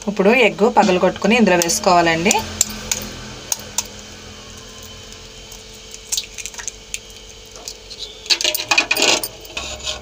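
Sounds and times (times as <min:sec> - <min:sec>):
liquid drips and squelches: 0:04.8 - 0:08.5.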